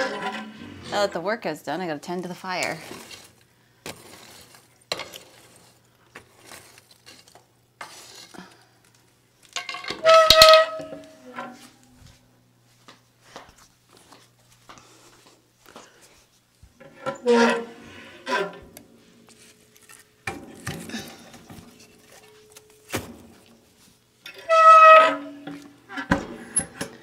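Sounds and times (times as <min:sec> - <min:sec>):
poker scraping ashes in stove: 0:00.0 - 0:01.2, 0:02.6 - 0:08.4.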